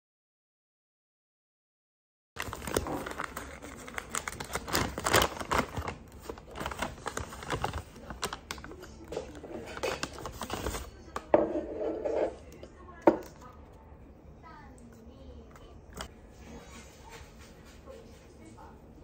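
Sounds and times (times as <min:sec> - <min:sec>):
paper bag crinkling: 0:02.4 - 0:11.1.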